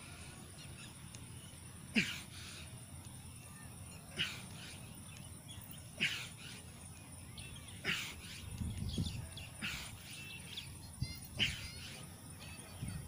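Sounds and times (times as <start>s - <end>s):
man breathing forcefully: 2.0s - 2.8s, 4.1s - 4.8s, 6.0s - 6.7s, 9.6s - 10.1s, 11.4s - 12.0s.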